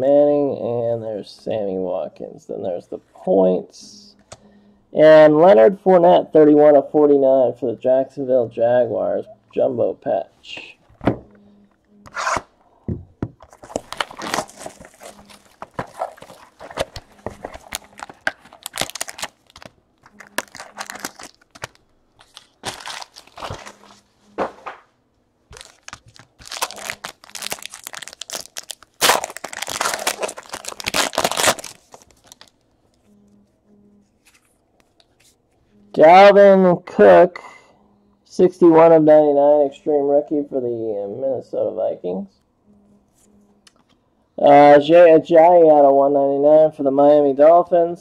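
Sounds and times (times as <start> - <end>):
cards rustling: 13.4 - 24.8, 25.5 - 33.1, 34.1 - 35.4
foil wrappers tearing and crinkling: 13.5 - 24.0, 25.5 - 32.6.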